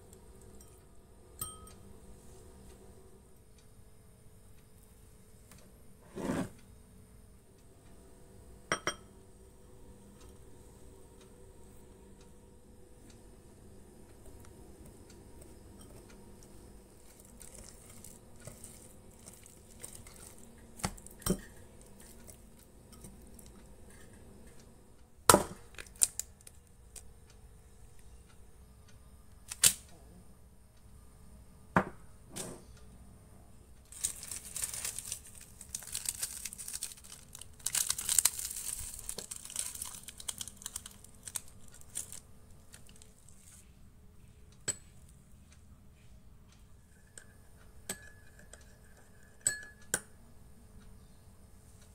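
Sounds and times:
foil sachet crinkled and torn: 17.0s - 21.2s, 25.8s - 26.6s, 33.9s - 43.3s.

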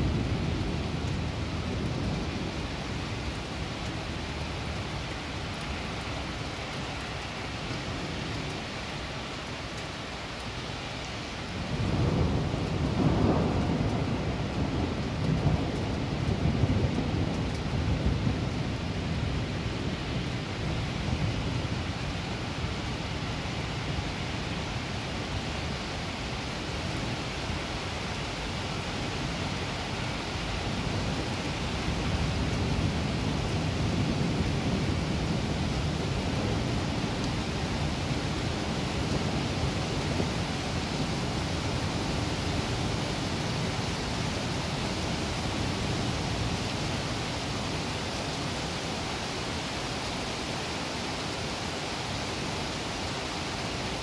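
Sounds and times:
heavy rain pouring: 0.0s - 54.0s
distant thunder rumble: 11.6s - 19.8s.

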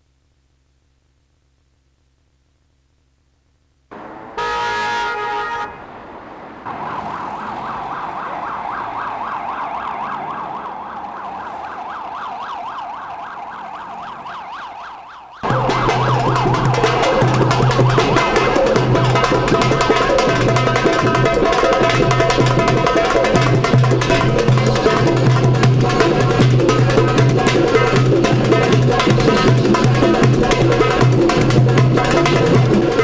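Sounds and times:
car horn blast: 3.9s - 6.5s
warbling siren: 3.9s - 31.4s
street traffic: 3.9s - 33.0s
loud drums: 15.4s - 33.0s.

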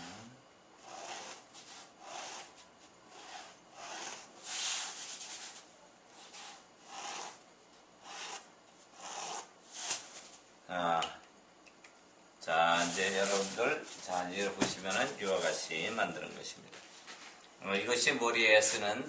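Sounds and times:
marker drawn across foam sponge: 0.8s - 5.6s, 6.2s - 7.4s, 8.0s - 10.0s.

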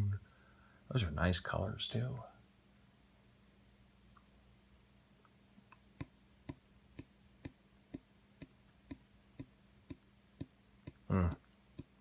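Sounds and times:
faint steady hum: 0.0s - 12.0s
even ticking clicks: 5.2s - 12.0s.

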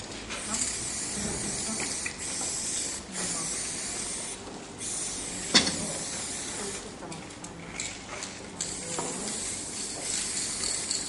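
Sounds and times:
spray paint can hissing: 0.0s - 6.9s, 7.8s - 11.0s.

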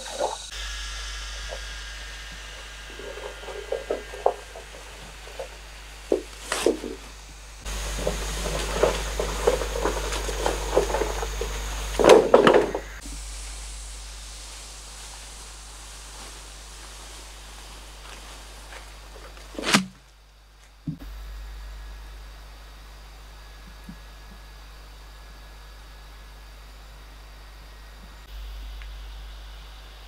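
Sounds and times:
rustling in leaf litter: 0.0s - 20.8s
bamboo poles knocking and clattering: 2.9s - 13.0s.

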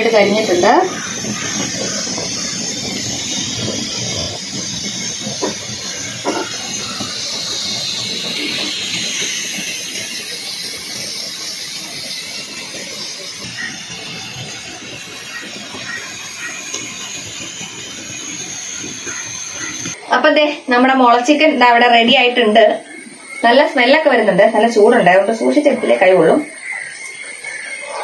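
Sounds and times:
fire crackles: 0.0s - 20.6s
steam hissing from bamboo: 0.0s - 28.0s.

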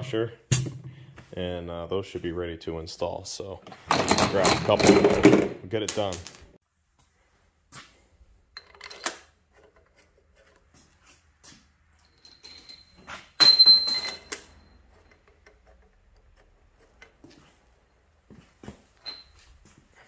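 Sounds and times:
metal bolts clinking: 3.7s - 6.6s, 8.5s - 9.3s, 12.0s - 17.2s, 19.0s - 19.4s
metallic jingle: 12.0s - 14.9s, 19.0s - 19.4s.

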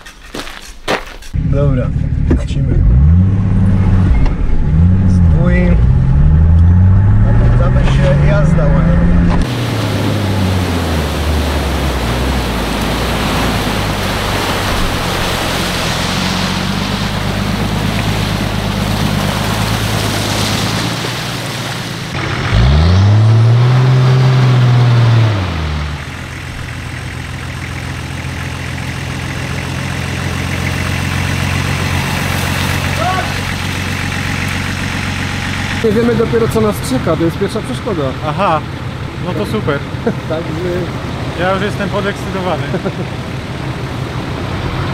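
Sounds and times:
off-road vehicle engine revving: 1.3s - 44.9s
rushing noise over rough ground: 3.6s - 22.7s.

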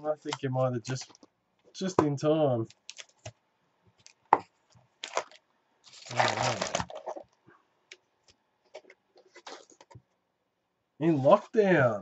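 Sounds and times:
foil packs rustling: 5.0s - 7.2s.

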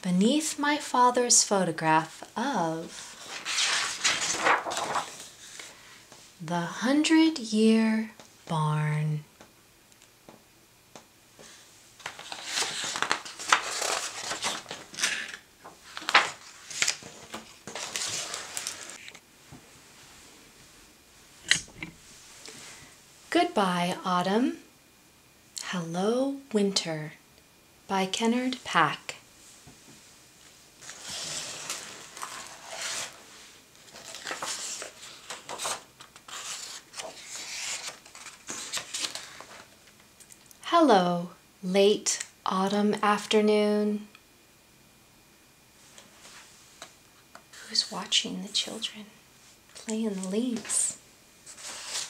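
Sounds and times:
pages turning: 3.0s - 5.7s, 12.0s - 19.2s, 30.8s - 33.2s, 33.8s - 40.0s, 51.5s - 52.0s
plastic jacket crinkling: 3.2s - 5.3s, 12.1s - 19.0s.

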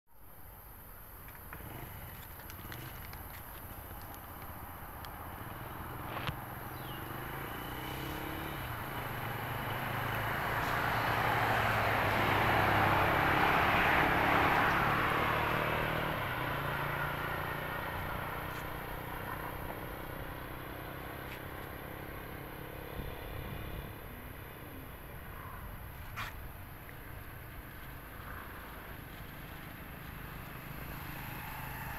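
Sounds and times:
vehicle driving past: 5.2s - 25.0s, 27.1s - 31.9s.

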